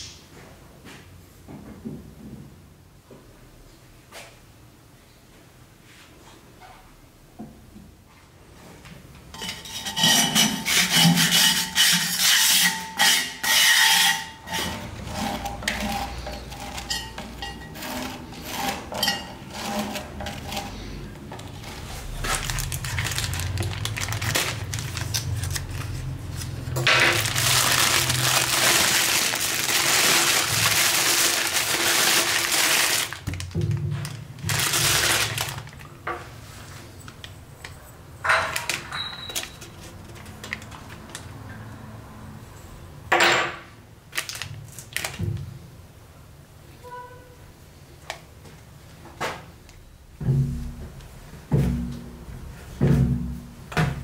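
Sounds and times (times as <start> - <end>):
plastic bag rustling: 20.4 - 36.9, 44.1 - 45.2.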